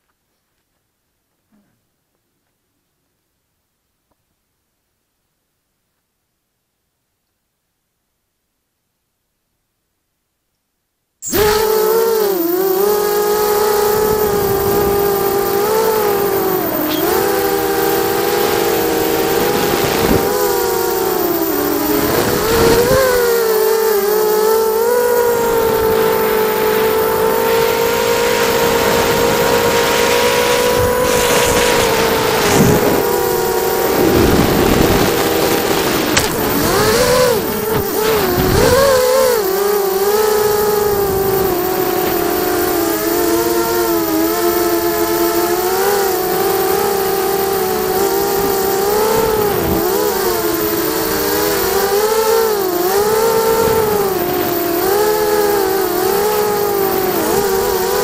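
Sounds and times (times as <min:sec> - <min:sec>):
quadcopter motors whining: 0:11.2 - 0:58.0
wind noise rushing: 0:30.8 - 0:39.0.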